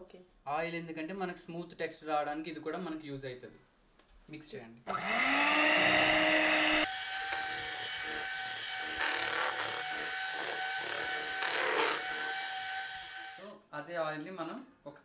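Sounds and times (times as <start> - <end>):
electric hand mixer whirring: 4.9 - 13.4.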